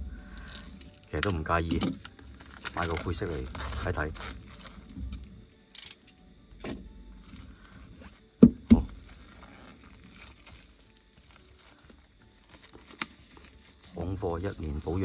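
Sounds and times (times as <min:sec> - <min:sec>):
plastic film rustling: 0:00.4 - 0:05.4, 0:07.2 - 0:15.0
box knocking on table: 0:08.4 - 0:09.0.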